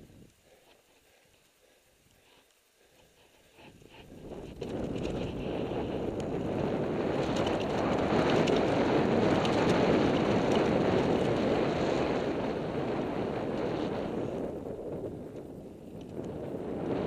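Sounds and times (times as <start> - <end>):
wind rushing over microphone: 3.5 - 17.0.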